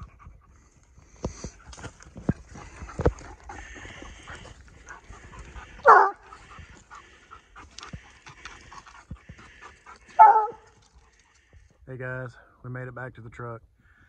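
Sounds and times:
dog panting: 0:00.0 - 0:11.8
dog baying: 0:02.6 - 0:11.4.

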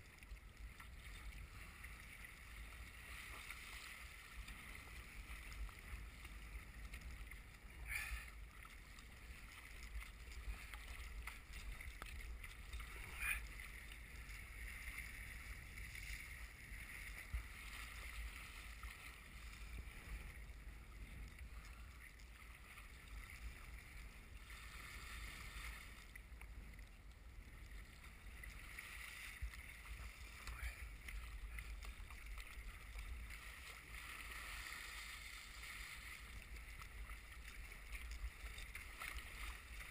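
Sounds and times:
water sloshing around kayak: 0:00.0 - 0:39.9.

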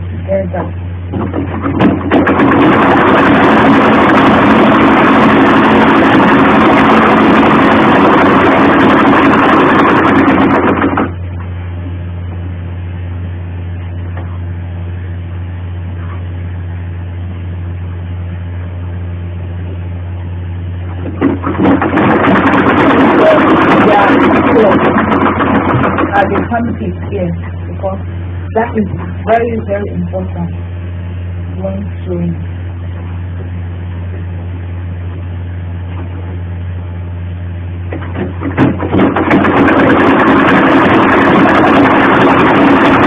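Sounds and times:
steady low hum: 0:00.0 - 0:43.0
sewing machine running: 0:01.4 - 0:11.2, 0:20.9 - 0:26.9, 0:38.1 - 0:43.0.

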